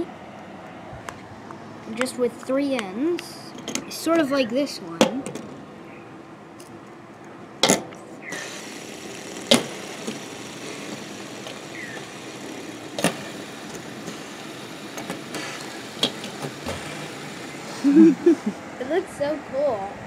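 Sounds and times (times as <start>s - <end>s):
fidget spinners whirring: 8.3s - 19.1s.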